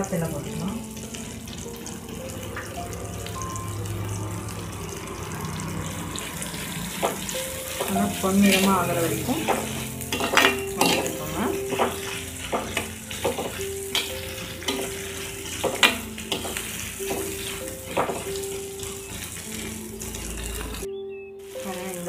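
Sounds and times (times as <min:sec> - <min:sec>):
onions sizzling in hot oil: 0:00.0 - 0:22.0
metal spatula scraping pot: 0:07.0 - 0:19.3.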